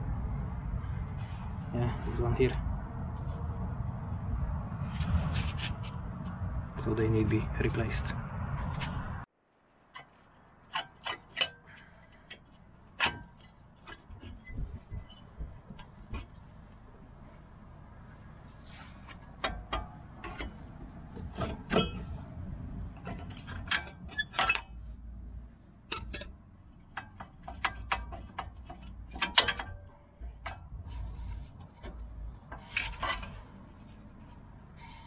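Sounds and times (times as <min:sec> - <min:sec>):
metal brake parts clicking and clinking: 0:09.9 - 0:16.5, 0:19.0 - 0:25.1, 0:25.8 - 0:35.0.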